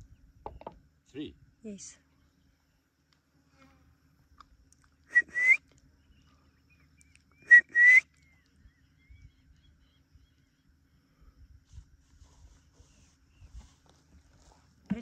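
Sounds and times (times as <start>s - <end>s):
person whistling: 5.1s - 5.6s, 7.4s - 8.1s.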